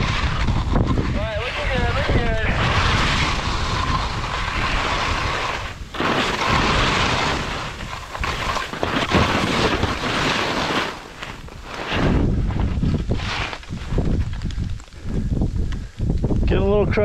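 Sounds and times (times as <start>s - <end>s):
skis scraping across crusty snow: 0.0s - 15.0s
wind rushing over microphone: 0.0s - 17.0s.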